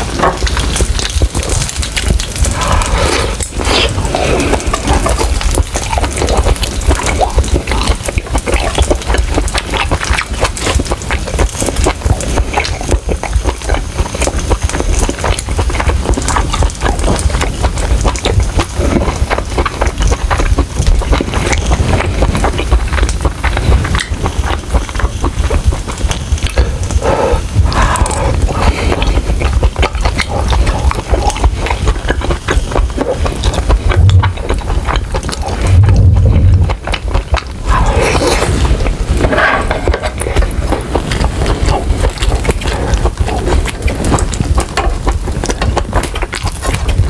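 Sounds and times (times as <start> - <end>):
wet chewing and lip-smacking: 0.0 - 47.0
low thumps: 33.8 - 37.8.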